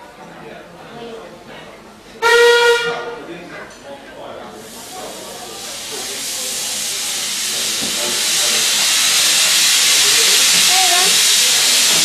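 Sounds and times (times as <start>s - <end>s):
steam locomotive hissing: 4.5s - 12.0s.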